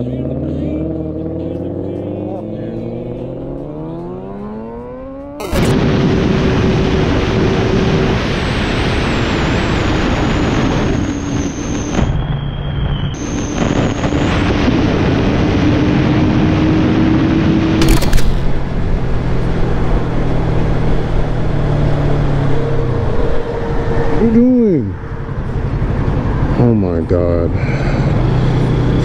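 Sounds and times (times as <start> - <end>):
motorcycle engine accelerating: 0.0 - 7.9.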